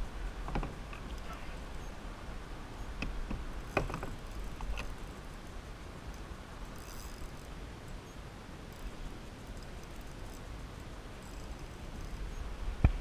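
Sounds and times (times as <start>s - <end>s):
low steady rumble: 0.0s - 13.0s
fishing reel clicks: 6.1s - 8.1s, 8.7s - 12.4s.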